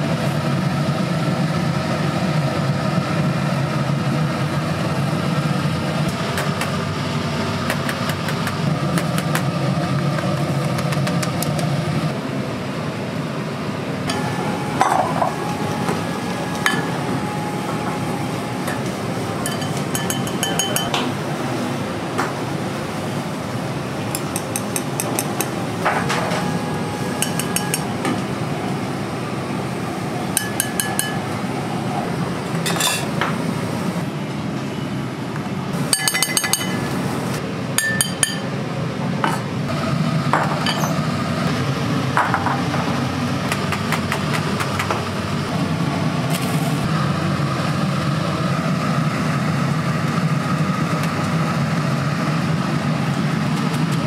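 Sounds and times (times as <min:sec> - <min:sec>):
kitchen hum: 0:04.8 - 0:54.0
dishes and utensils clinking: 0:19.4 - 0:21.1, 0:27.2 - 0:27.9, 0:30.4 - 0:31.2, 0:32.6 - 0:33.3, 0:35.9 - 0:36.9, 0:37.8 - 0:38.5, 0:40.4 - 0:41.0.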